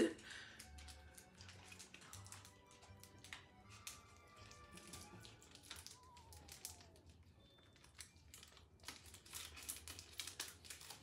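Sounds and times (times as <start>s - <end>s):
plastic wrapper crinkling: 0.3s - 11.0s.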